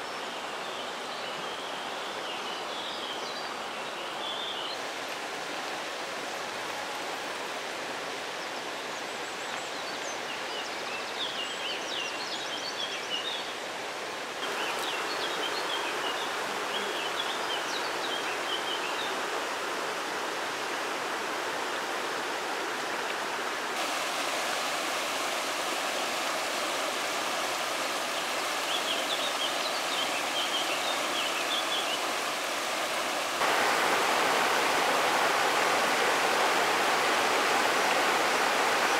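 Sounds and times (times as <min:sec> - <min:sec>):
river rushing over stones: 0:00.0 - 0:12.0, 0:13.0 - 0:38.9
small birds chirping: 0:26.5 - 0:38.9.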